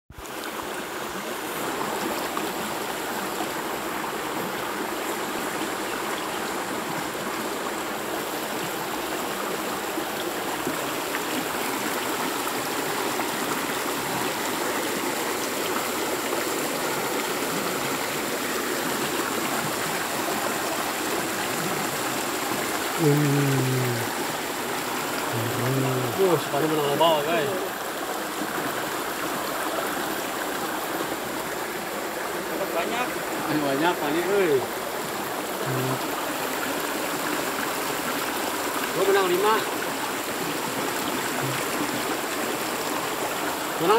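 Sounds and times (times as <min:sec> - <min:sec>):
stream water running: 0:00.1 - 0:43.9
short voice: 0:23.0 - 0:24.2, 0:25.3 - 0:26.2.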